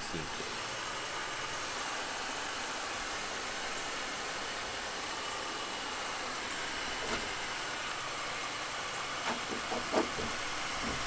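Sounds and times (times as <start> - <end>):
heat gun blowing: 0.0 - 11.0.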